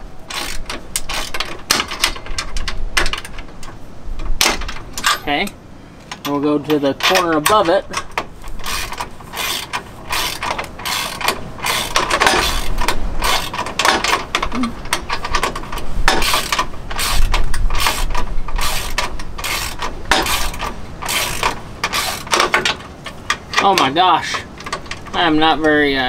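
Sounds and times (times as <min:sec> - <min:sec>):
ratchet wrench clicking: 0:00.3 - 0:03.4, 0:07.0 - 0:22.8.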